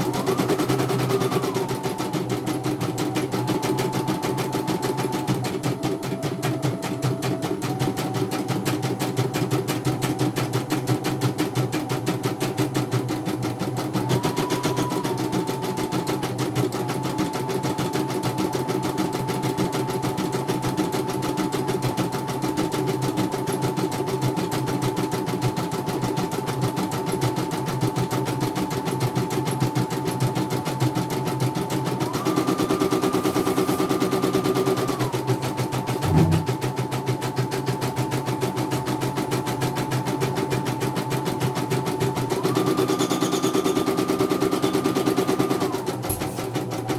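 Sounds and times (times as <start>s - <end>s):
motor hum: 32.9s - 36.8s
short knock: 36.0s - 36.6s.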